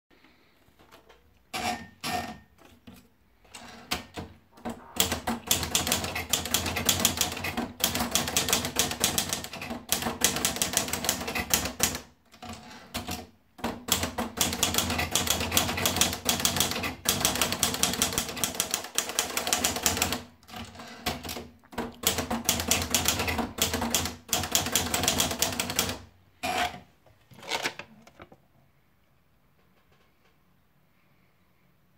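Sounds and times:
rapid typewriter keystrokes: 0:03.9 - 0:26.1.

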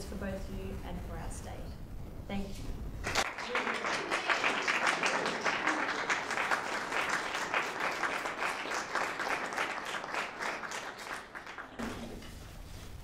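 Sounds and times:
audience applauding: 0:03.0 - 0:12.1.

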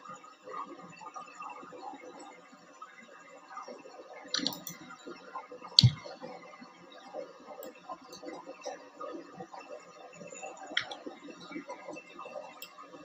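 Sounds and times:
computer mouse clicks: 0:04.4 - 0:04.8, 0:05.8 - 0:06.1, 0:10.8 - 0:11.1.

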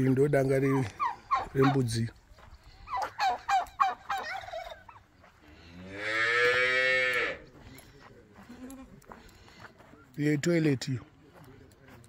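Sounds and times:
turkey gobbling: 0:00.6 - 0:02.0, 0:02.9 - 0:05.1
cow mooing: 0:05.8 - 0:07.4.

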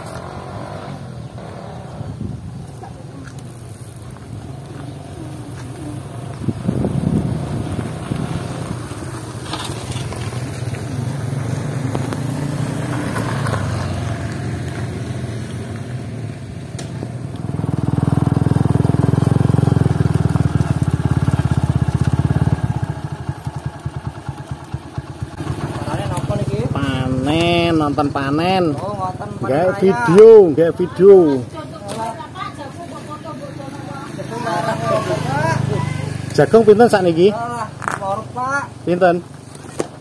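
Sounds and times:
motorcycle engine running: 0:00.0 - 0:39.8.

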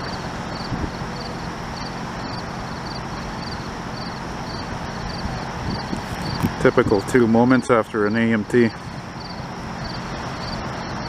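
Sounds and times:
insect chirping: 0:00.0 - 0:06.9, 0:08.8 - 0:11.0
wind rumble: 0:00.0 - 0:07.8.

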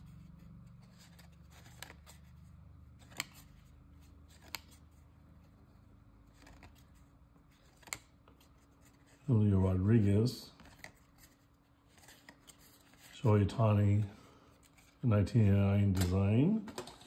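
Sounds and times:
faint low hum: 0:00.0 - 0:17.0
cards flicking: 0:02.9 - 0:03.6, 0:07.6 - 0:08.2.

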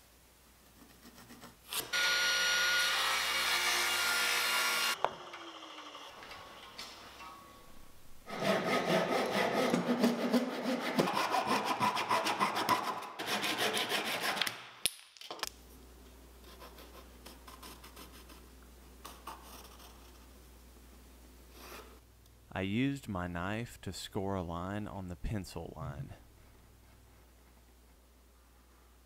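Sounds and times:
hand saw cutting wood: 0:08.3 - 0:14.6.

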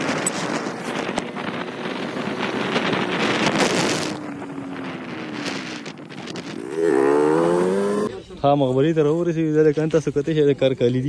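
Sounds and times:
wind buffeting microphone: 0:00.0 - 0:08.2.

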